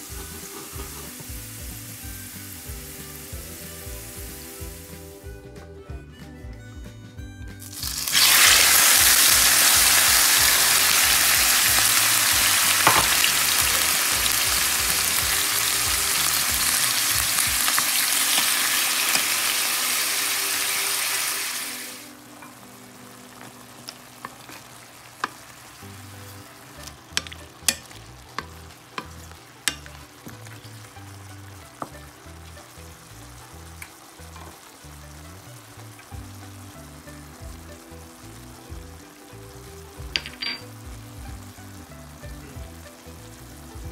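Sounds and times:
squid sizzling in hot oil: 0.0 - 5.2, 7.6 - 43.9
oil popping: 7.6 - 19.3.

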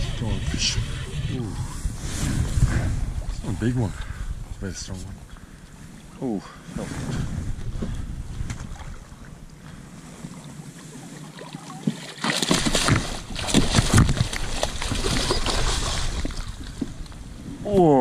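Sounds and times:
wind rumble on microphone: 0.0 - 10.4, 12.6 - 18.0
fish splashing in water: 11.2 - 16.7.

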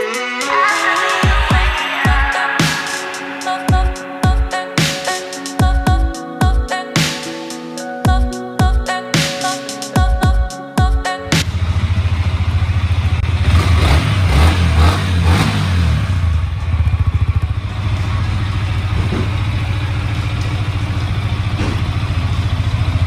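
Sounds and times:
motorcycle engine idling and revving: 11.4 - 23.0.

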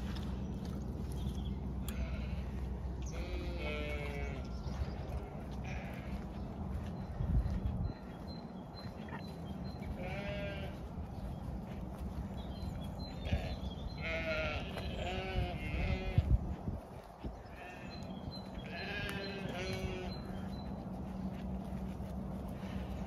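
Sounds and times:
low steady rumble: 0.0 - 23.0
sheep bleating: 1.8 - 6.4, 9.8 - 10.8, 13.2 - 16.5, 17.4 - 20.6.

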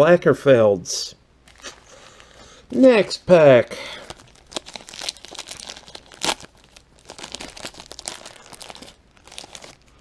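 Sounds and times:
paper wrapper crinkling and tearing: 1.4 - 3.2, 3.9 - 10.0.

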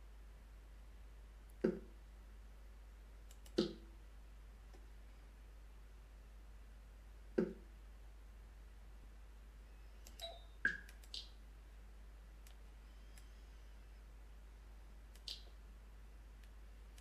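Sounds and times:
computer mouse clicks: 3.3 - 3.9, 10.0 - 11.4, 12.4 - 13.4, 15.1 - 15.6.

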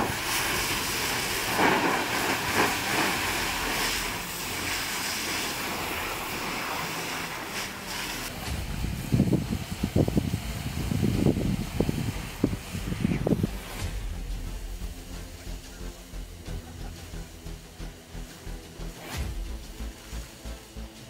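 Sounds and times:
fire hose spraying water: 0.0 - 21.0
wind buffeting microphone: 8.3 - 14.4.

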